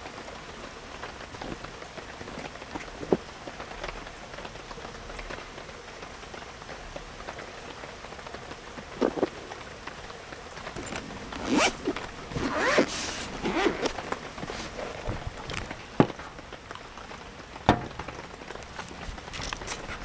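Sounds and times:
zipper being pulled open: 10.8 - 15.7.

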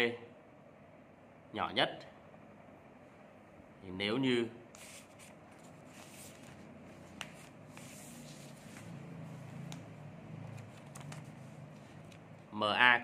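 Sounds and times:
low steady hum: 0.0 - 13.0
paper rustling and pages turning: 4.8 - 12.4.

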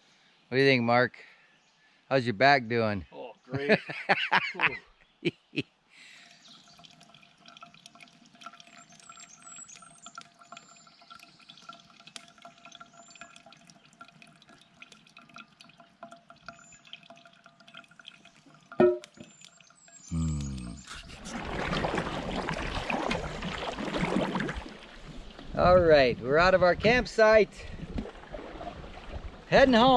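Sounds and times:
coffee trickling and dripping: 6.1 - 25.5.

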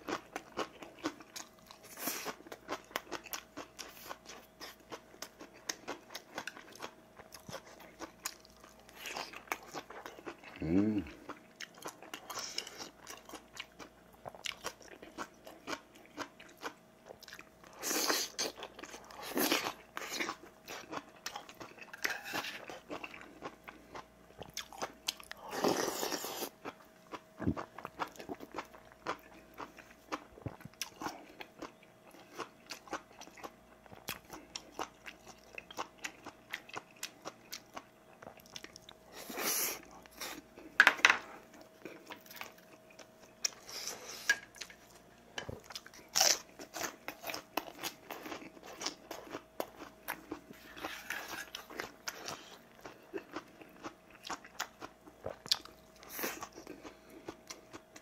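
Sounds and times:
person chewing: 0.0 - 58.0
slurping soup: 50.5 - 51.7.

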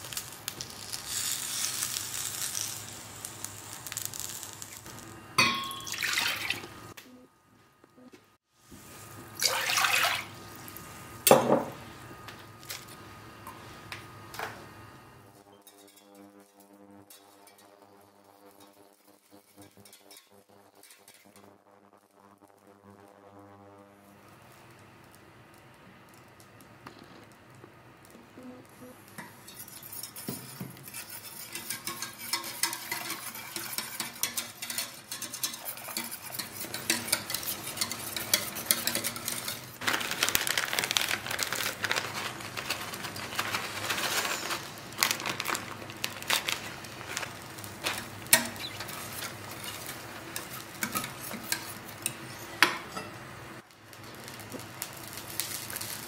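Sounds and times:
wire whisk scraping metal pot: 15.5 - 21.6, 29.2 - 39.8, 46.2 - 53.1.

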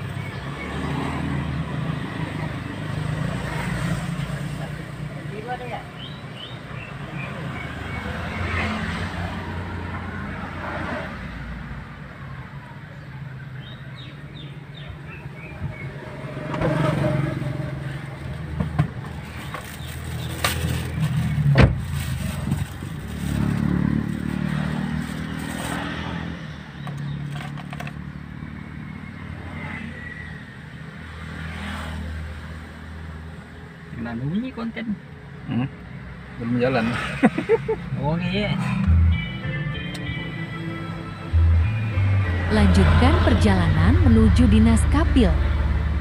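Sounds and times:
car engine and road noise: 0.0 - 46.0.

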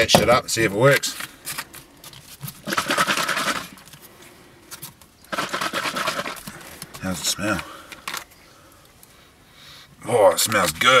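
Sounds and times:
liquid sloshing in shaken bottle: 2.5 - 3.8, 5.3 - 6.6.

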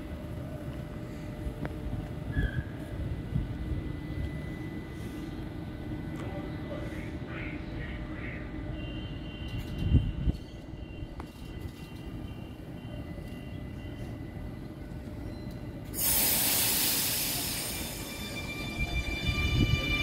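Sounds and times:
electric train traction whine: 0.0 - 6.2, 10.7 - 20.0
loud hiss of air: 16.0 - 18.4.

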